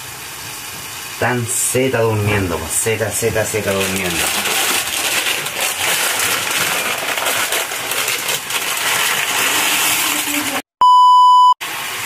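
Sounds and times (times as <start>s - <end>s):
dry noodles poured into a pot: 3.6s - 10.5s
censor beep: 10.8s - 11.6s.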